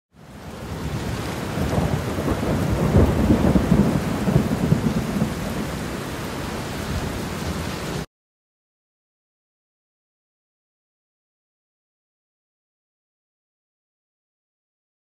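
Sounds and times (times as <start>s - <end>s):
heavy rain: 0.1s - 8.1s
rolling thunder: 0.6s - 6.1s.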